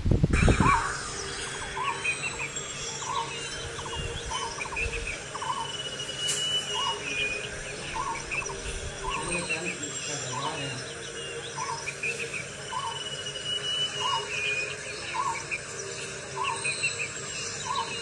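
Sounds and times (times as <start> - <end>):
wind gust on microphone: 0.0 - 2.0
birds chirping: 0.1 - 18.0
high insect drone: 0.2 - 18.0.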